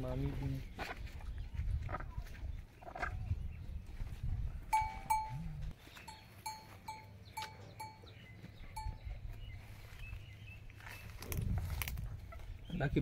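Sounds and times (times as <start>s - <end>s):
cattle bell clanking: 4.7s - 9.1s.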